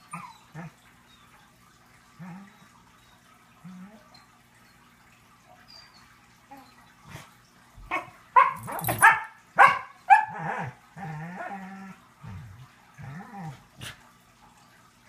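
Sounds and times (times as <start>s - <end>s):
dog growling: 2.2s - 2.6s, 10.4s - 14.0s
dog yipping and barking: 7.9s - 10.8s.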